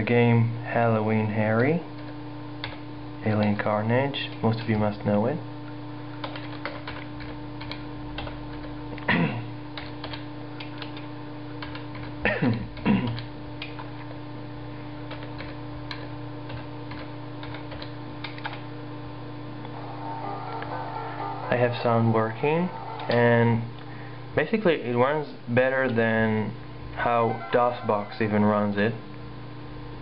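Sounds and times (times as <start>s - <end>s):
computer hum: 0.0s - 30.0s
keyboard typing clicks: 6.2s - 9.1s, 9.8s - 14.1s, 15.0s - 18.6s.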